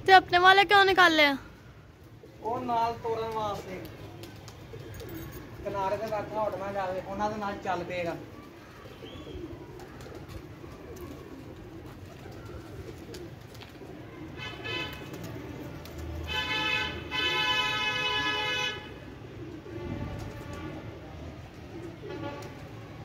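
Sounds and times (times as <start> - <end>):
pigeons cooing: 1.6 - 17.8, 18.4 - 23.0
vehicle horn: 14.4 - 15.1, 16.3 - 19.0, 22.0 - 22.6.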